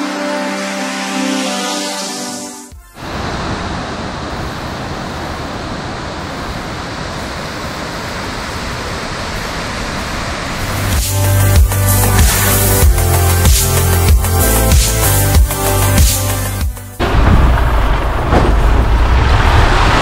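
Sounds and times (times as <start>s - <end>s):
waterfall rushing: 3.0s - 13.4s
electronic music with heavy bass: 10.6s - 17.1s.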